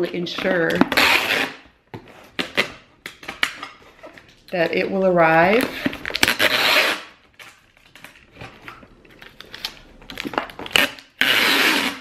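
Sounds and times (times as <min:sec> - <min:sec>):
packing tape pulled from dispenser: 0:05.8 - 0:07.2, 0:10.6 - 0:12.0.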